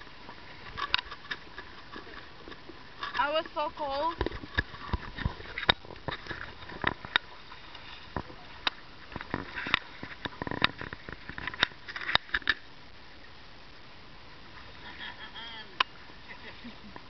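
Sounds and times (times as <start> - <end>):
low water wash: 0.0 - 17.0
sharp knocks and clicks of canoe: 0.2 - 12.7.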